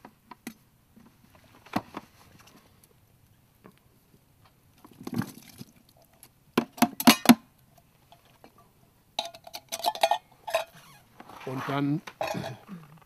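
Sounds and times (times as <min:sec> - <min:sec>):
metal can clinking and rattling: 0:06.8 - 0:07.4, 0:09.2 - 0:10.8, 0:12.2 - 0:12.6.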